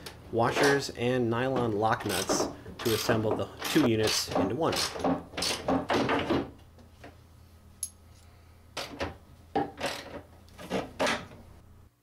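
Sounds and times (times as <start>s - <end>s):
small metallic clink: 7.8s - 8.3s.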